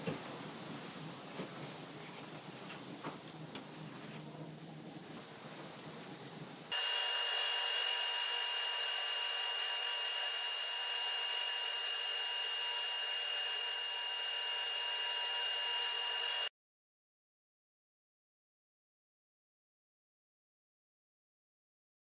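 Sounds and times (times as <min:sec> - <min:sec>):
table saw whining: 0:06.7 - 0:16.5.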